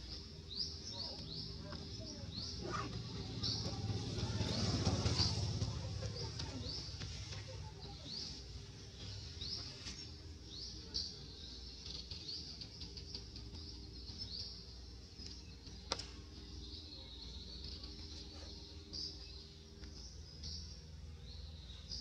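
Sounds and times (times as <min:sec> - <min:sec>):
low rumble: 0:01.3 - 0:09.8.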